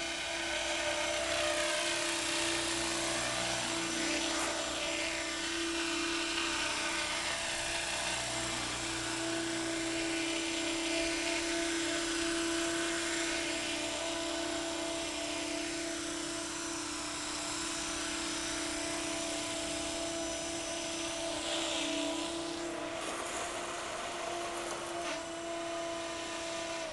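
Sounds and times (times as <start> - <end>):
model helicopter whine: 0.0 - 26.9.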